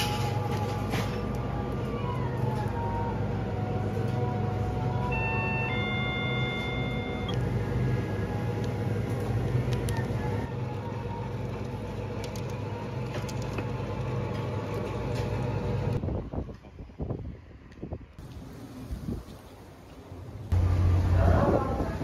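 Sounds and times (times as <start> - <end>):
coffee machine humming: 0.0 - 16.0, 18.2 - 21.3
electronic tones: 5.1 - 7.4.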